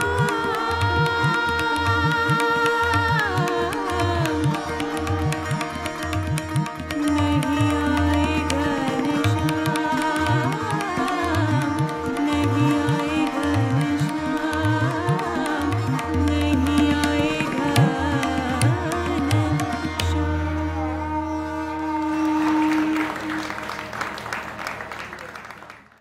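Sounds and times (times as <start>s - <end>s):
tabla strokes: 0.0s - 25.1s.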